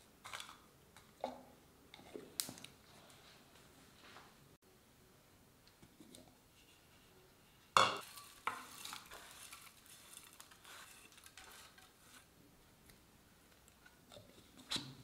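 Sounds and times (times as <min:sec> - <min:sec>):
spoon stirring and scraping pan: 0:07.7 - 0:12.3.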